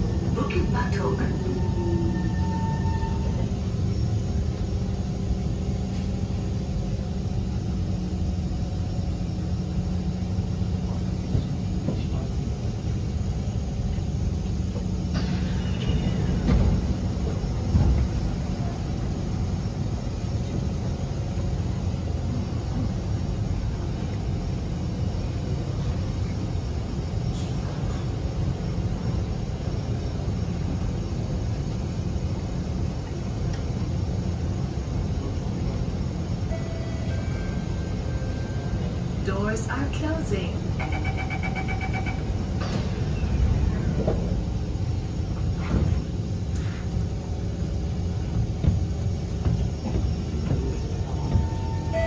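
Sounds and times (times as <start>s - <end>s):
train motor hum: 0.0s - 52.0s
train wheels rumbling on track: 0.0s - 52.0s.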